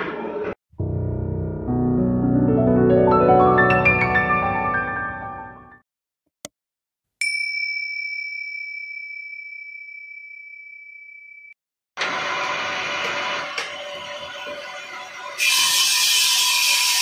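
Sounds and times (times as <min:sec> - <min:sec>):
bell ding: 0:07.2 - 0:11.6
wood-turning lathe running: 0:12.0 - 0:17.0.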